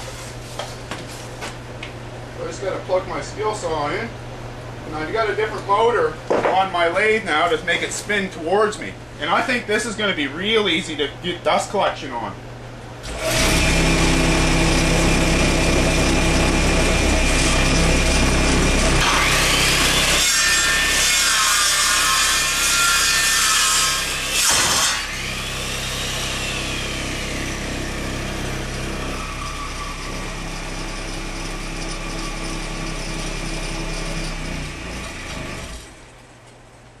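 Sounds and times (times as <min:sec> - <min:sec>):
circular saw cutting wood: 0:13.0 - 0:36.1.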